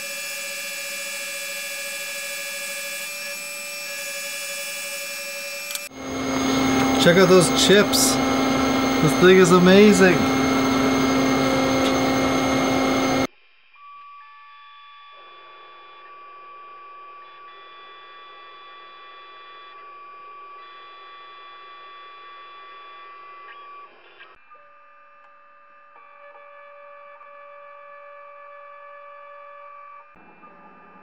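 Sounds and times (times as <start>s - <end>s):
milling machine cutting metal: 0.0s - 13.3s.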